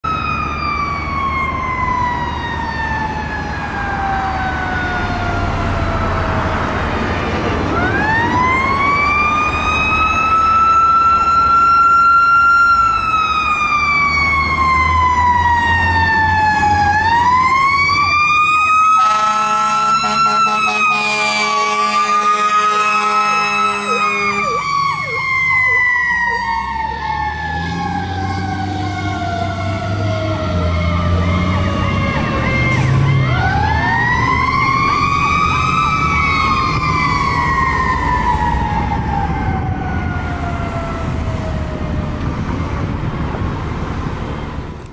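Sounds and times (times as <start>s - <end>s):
fire engine siren: 0.0s - 44.9s
air horns blasting: 18.8s - 25.1s.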